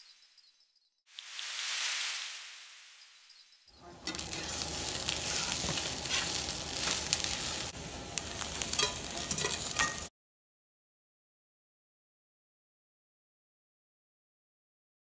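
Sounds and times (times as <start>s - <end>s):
chicken sizzling in a frying pan: 1.1s - 2.8s, 3.8s - 10.1s
spatula scraping a pan: 3.9s - 10.1s.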